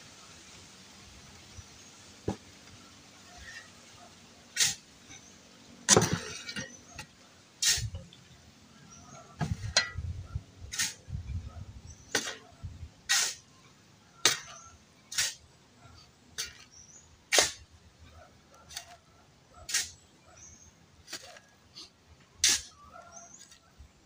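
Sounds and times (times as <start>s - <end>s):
handling and scraping noises: 2.2s - 24.0s.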